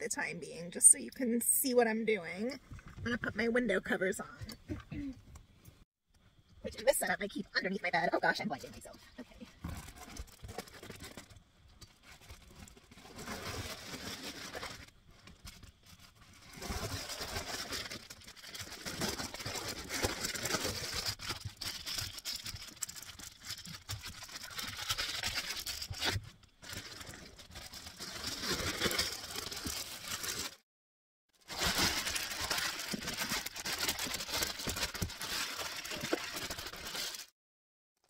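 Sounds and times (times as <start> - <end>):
foil insulation crinkling and scraping: 8.7 - 30.6, 31.4 - 37.3.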